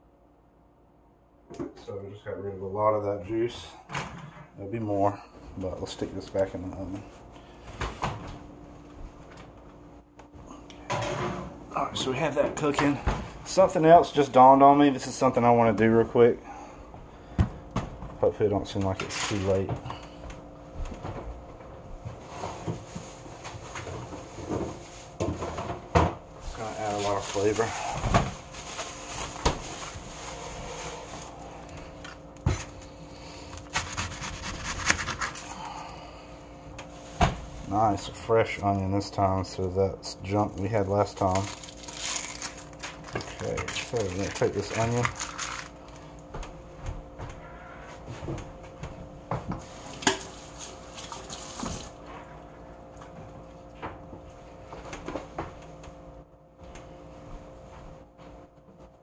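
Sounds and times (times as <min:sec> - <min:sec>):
knife sawing through onion: 0:33.7 - 0:35.6.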